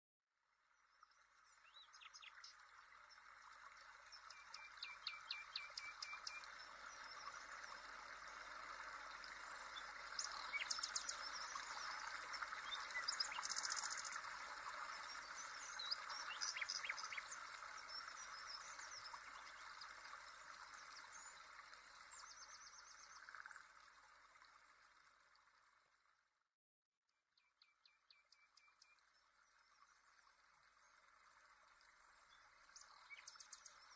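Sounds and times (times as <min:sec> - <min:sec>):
small birds chirping: 0:01.0 - 0:07.9, 0:09.2 - 0:23.4.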